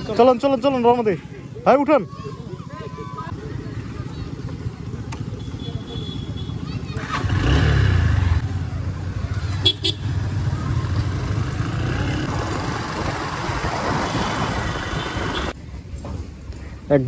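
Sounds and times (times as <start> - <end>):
road and wind noise: 0.0 - 17.0
motorcycle engine running: 3.3 - 15.5
horn toots: 9.6 - 10.2.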